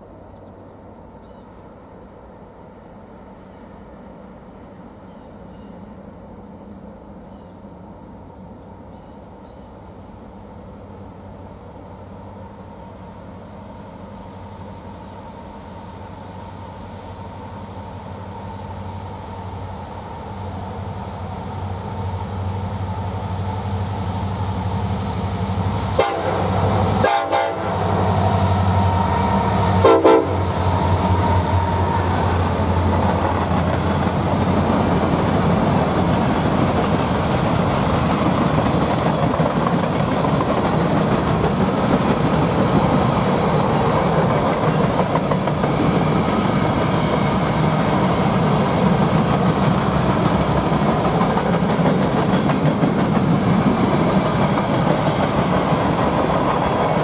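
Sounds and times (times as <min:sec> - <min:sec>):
diesel locomotive engines droning: 0:00.0 - 0:57.0
train horn: 0:25.8 - 0:32.8.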